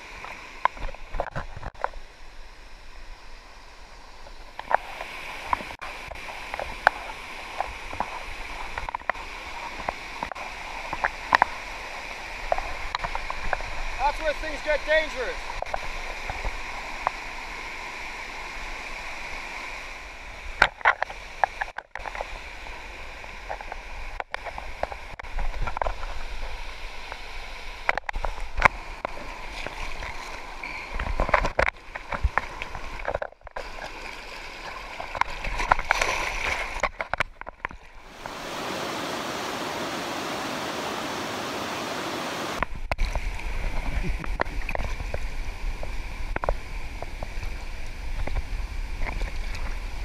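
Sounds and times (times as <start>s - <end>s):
water rushing over rocks: 0.0s - 50.0s
sharp knocks and splashes: 27.8s - 38.4s, 42.6s - 47.6s.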